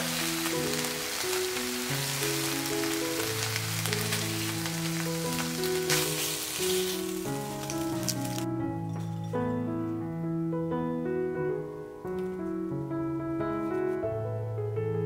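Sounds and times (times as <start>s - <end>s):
beef sizzling in a frying pan: 0.0s - 8.5s
soft background music: 0.0s - 15.0s
chopsticks clicking: 5.8s - 8.5s.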